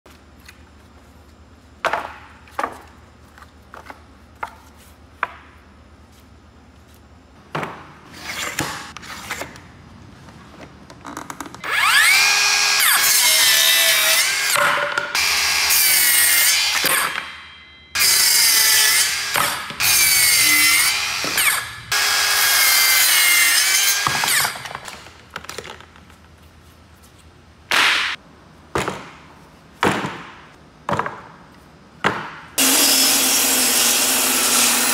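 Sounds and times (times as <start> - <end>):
circular saw cutting wood: 11.6 - 14.6, 15.2 - 17.1, 18.0 - 24.6, 32.6 - 34.9.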